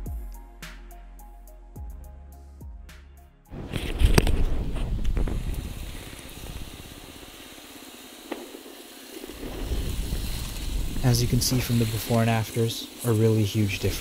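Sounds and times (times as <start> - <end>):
pressure washer spray hissing: 5.4 - 14.0.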